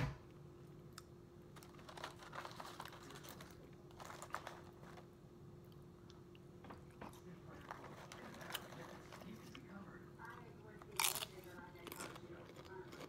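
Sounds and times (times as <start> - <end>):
chips clicking and crinkling: 1.5 - 5.1, 10.8 - 13.0.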